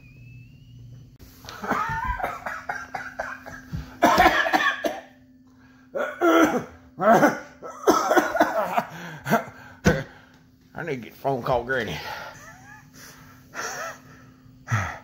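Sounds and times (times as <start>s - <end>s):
man coughing hard: 1.6s - 5.2s, 6.0s - 10.2s.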